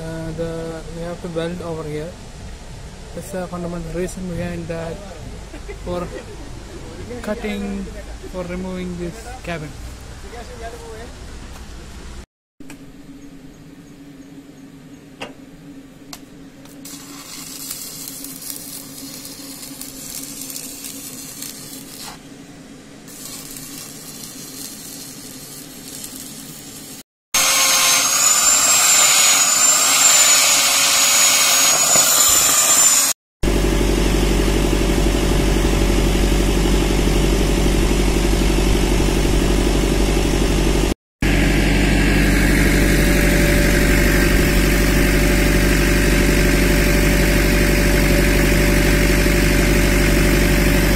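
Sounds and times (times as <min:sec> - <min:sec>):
angle grinder whining: 0:27.4 - 0:40.5, 0:41.3 - 0:50.9.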